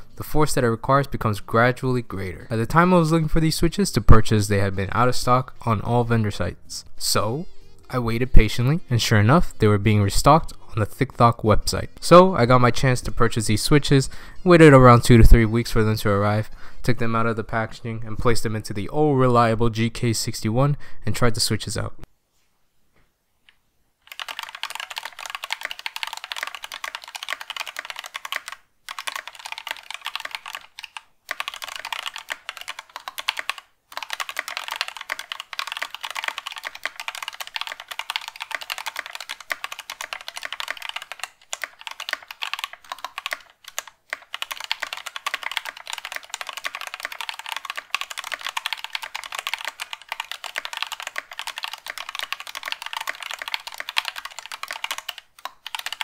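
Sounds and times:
fast keyboard typing clacks: 24.1s - 56.0s.

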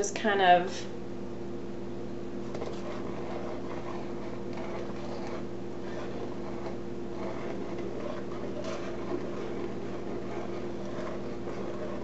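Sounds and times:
appliance humming: 0.0s - 12.0s
spatula scraping batter: 2.4s - 12.0s.

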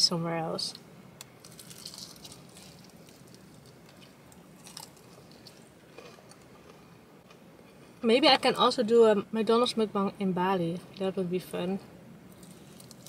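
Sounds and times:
chewing crispy food: 1.3s - 7.4s, 12.3s - 13.0s
soft crunches: 1.4s - 7.4s, 12.3s - 13.0s.

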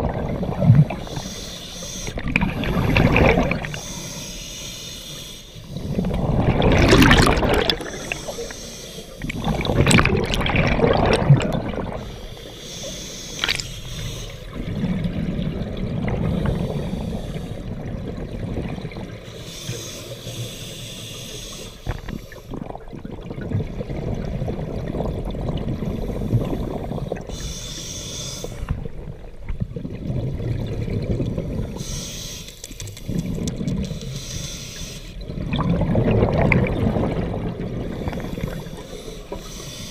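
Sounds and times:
hissing regulator inhalations: 0.9s - 6.2s, 7.8s - 9.9s, 12.0s - 14.6s, 16.2s - 17.6s, 19.3s - 22.5s, 26.0s - 28.7s, 31.8s - 35.2s, 37.9s - 39.9s
bubbling exhalations: 2.1s - 3.8s, 5.8s - 8.6s, 9.2s - 12.1s.

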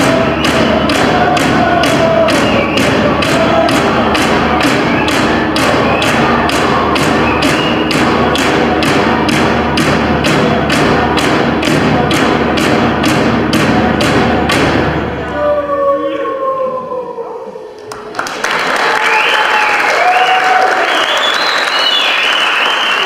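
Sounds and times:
frame drums beating: 0.0s - 15.3s
voices singing: 0.0s - 17.7s.

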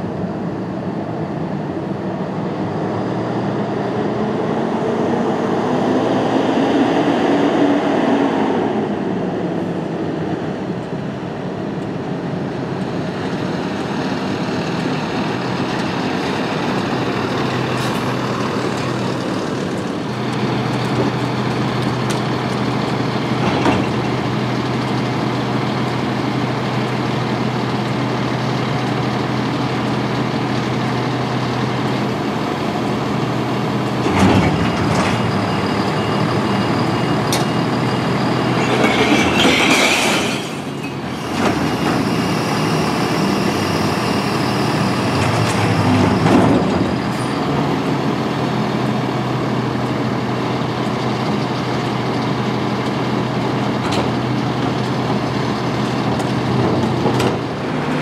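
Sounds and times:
diesel engine idling: 12.0s - 38.7s, 40.8s - 58.0s.

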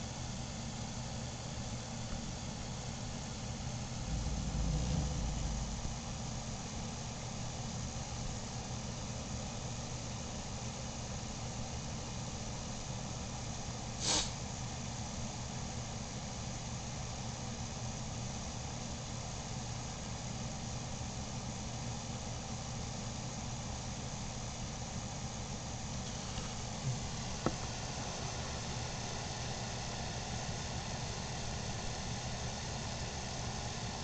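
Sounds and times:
motor humming: 3.5s - 6.8s.

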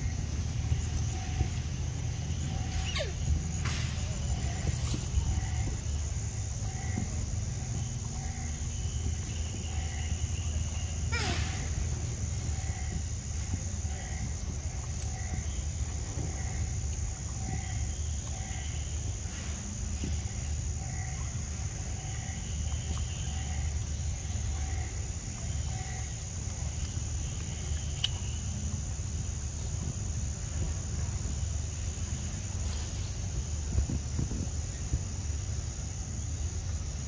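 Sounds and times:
high insect drone: 0.0s - 37.0s
small animal calling: 2.5s - 3.4s, 10.8s - 11.8s.

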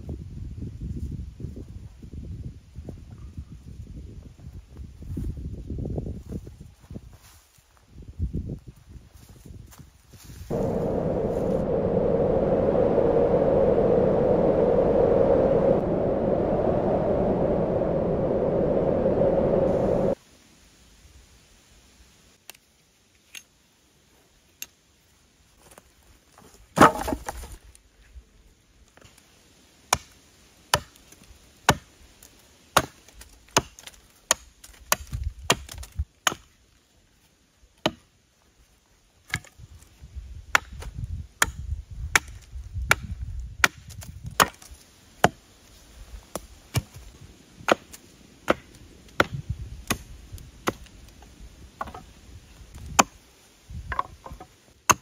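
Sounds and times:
blade chopping wood: 26.8s - 27.4s.

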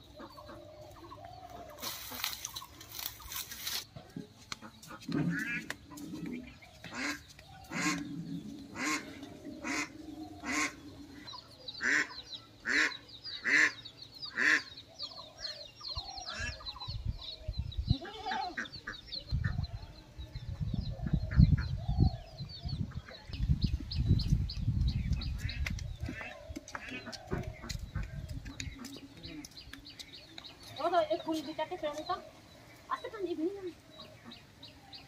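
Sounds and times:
small birds chirping: 0.0s - 35.0s
bird honk-like calls: 6.3s - 8.1s, 8.7s - 14.8s.

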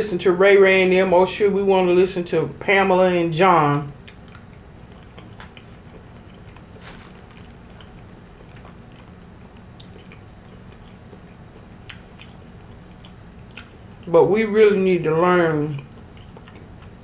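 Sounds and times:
steady low hum: 0.0s - 17.0s
closed-mouth chewing: 4.0s - 14.2s, 15.7s - 17.0s.

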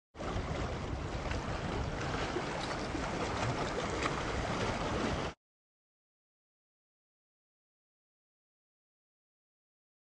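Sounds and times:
water splashing over rocks: 0.2s - 5.4s
wind buffeting microphone: 0.2s - 5.4s.

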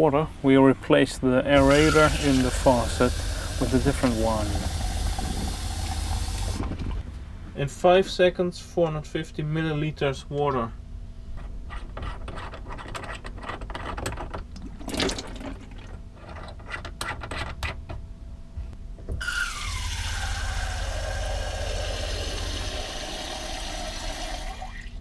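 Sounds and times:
low steady hum: 0.0s - 25.0s
water running into plastic jug: 1.6s - 6.9s, 14.6s - 16.0s.

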